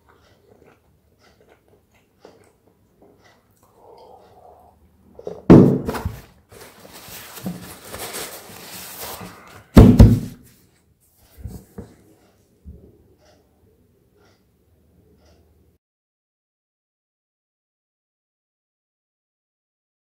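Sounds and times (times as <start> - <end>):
loud dull thumps: 5.5 - 6.1, 9.8 - 10.4
soft hissy rustle: 6.5 - 9.4.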